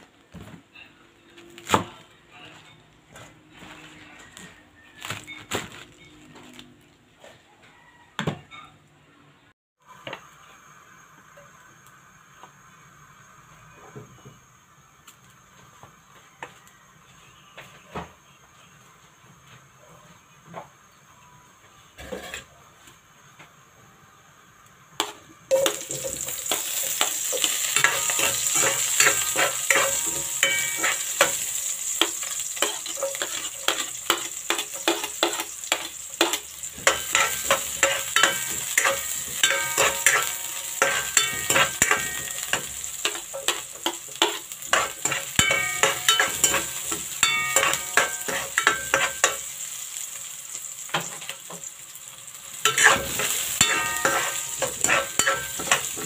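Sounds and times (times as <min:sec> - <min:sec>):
onion sizzling in hot oil: 0:09.8 - 0:16.0, 0:24.1 - 0:56.0
metal spatula scraping a wok: 0:22.0 - 0:22.6, 0:25.0 - 0:50.0, 0:52.6 - 0:56.0.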